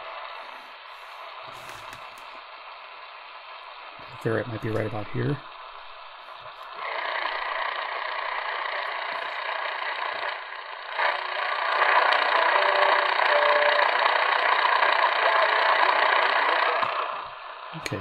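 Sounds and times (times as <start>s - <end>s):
radio static hiss: 0.0s - 7.7s, 15.1s - 18.0s.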